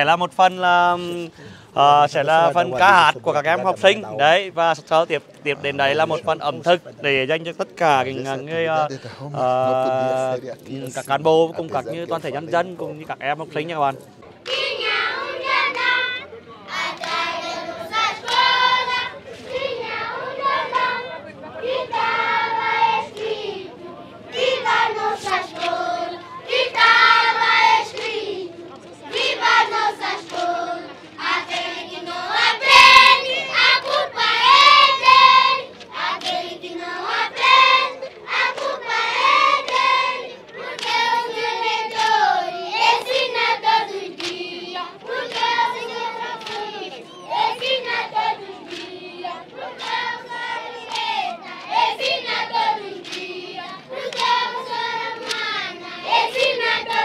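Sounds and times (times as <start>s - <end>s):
children singing in chorus: 14.5s - 57.0s
hand clapping: 18.2s - 18.6s, 25.2s - 26.3s, 27.9s - 28.2s, 30.2s - 30.6s, 35.8s - 36.4s, 38.5s - 41.2s, 41.9s - 42.2s, 44.1s - 49.1s, 49.7s - 57.0s.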